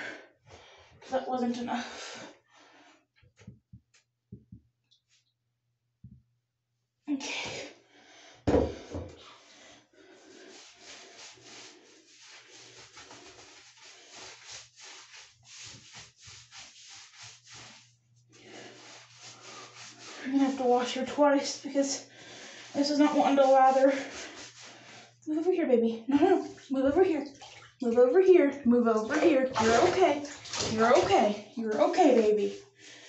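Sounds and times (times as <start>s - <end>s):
thump: 8.5s - 9.1s
wet rubbing of dog's coat: 10.0s - 25.2s, 26.1s - 26.7s, 29.0s - 32.8s.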